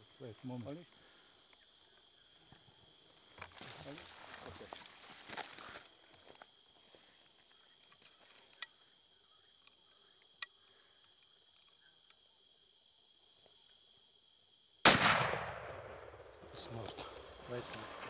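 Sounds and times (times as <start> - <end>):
insects chirping: 0.0 - 18.0
rifle shot with rolling boom: 14.8 - 16.4.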